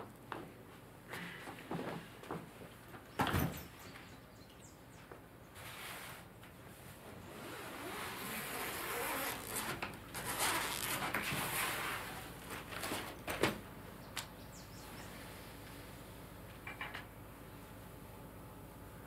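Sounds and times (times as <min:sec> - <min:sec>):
suitcase zipping: 0:07.3 - 0:12.3
fabric rustling: 0:07.4 - 0:13.1.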